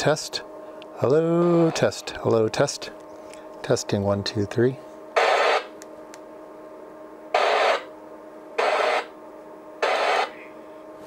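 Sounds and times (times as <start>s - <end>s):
steady low hum: 0.0s - 11.0s
radio static bursts: 5.2s - 5.7s, 7.4s - 7.9s, 8.6s - 9.1s, 9.8s - 10.5s.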